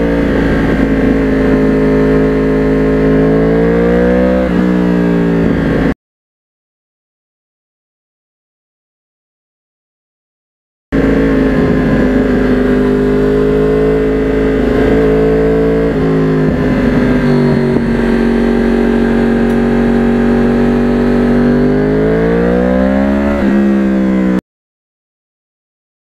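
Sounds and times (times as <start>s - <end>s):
motorcycle engine revving: 0.0s - 6.0s, 11.0s - 24.4s.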